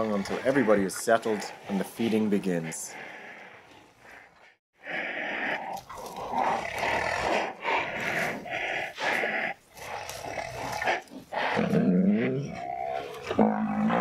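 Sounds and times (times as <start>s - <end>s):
rhinos hissing and snorting: 0.0s - 14.0s
low pitched growl: 5.7s - 14.0s.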